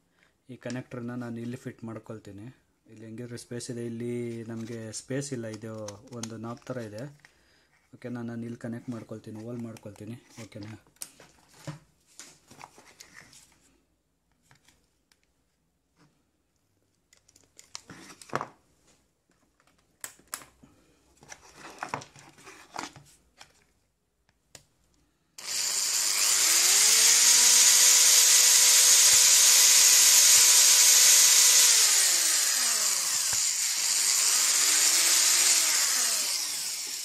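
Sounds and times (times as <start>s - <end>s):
electric drill whining: 25.4s - 37.0s.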